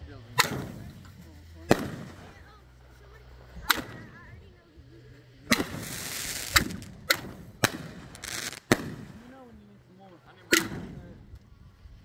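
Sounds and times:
firework crack: 0.2 - 12.0
firework bangs: 0.3 - 2.6, 3.6 - 4.2, 5.5 - 9.5
firework hissing burst: 0.3 - 4.2, 5.4 - 9.4.

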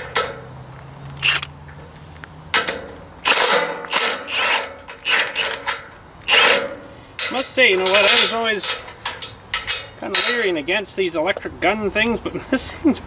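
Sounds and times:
impact wrench hammering: 1.2 - 1.5, 2.5 - 10.5.

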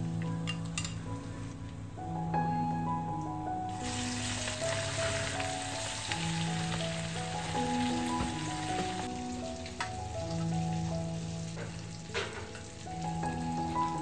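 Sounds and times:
fish deep frying in oil: 3.7 - 14.0.

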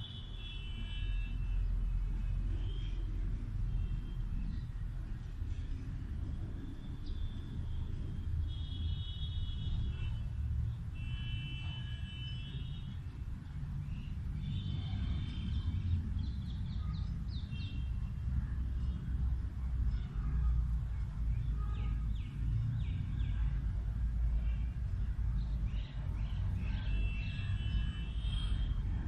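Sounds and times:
steady low rumble: 2.4 - 8.6.

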